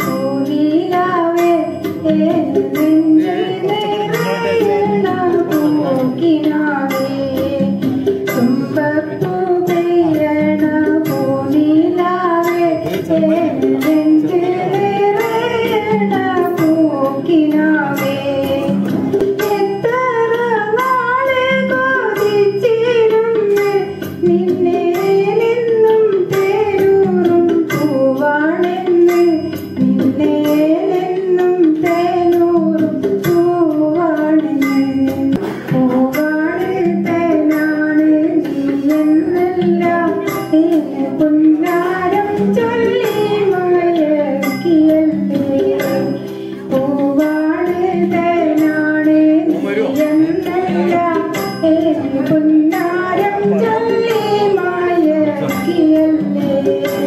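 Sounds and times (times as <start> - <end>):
light percussive beat: 0.0 - 57.0
woman singing: 0.0 - 57.0.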